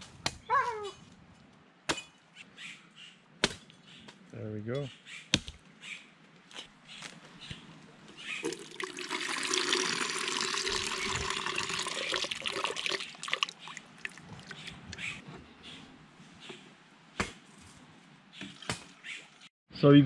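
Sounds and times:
water pouring into plastic pitcher: 8.4 - 14.5.

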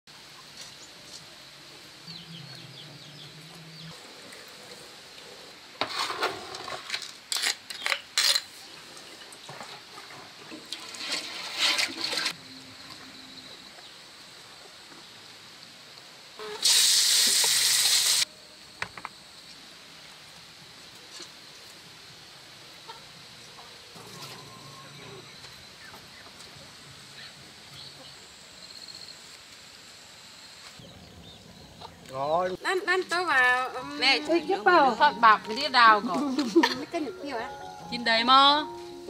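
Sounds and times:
water splashing and sloshing: 8.8 - 12.4
water pouring: 9.2 - 12.4.

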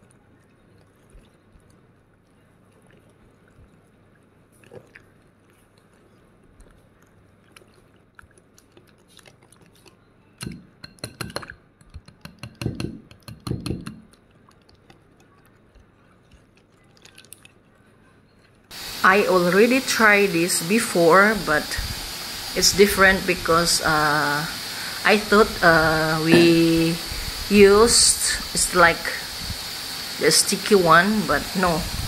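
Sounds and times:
whisk clicking against bowl: 9.8 - 16.7
whisk knocking against bowl: 10.8 - 14.0.

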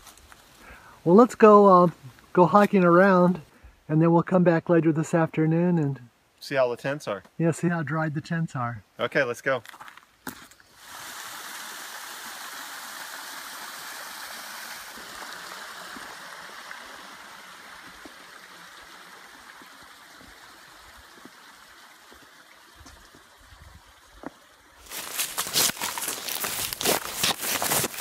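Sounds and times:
water trickling over stone: 10.8 - 28.0.

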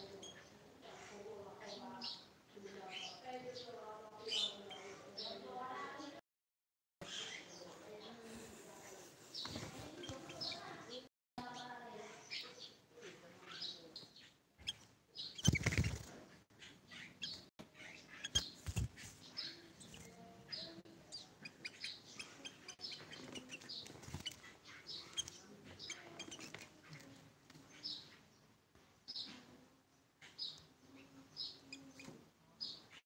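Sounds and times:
bird giving high chirps: 14.6 - 16.0, 16.9 - 20.7.

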